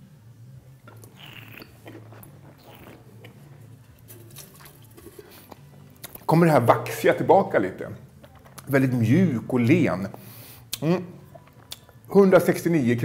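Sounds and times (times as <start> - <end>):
person sipping and slurping wine: 0.8 - 6.3
person spitting into metal bucket: 0.9 - 3.4.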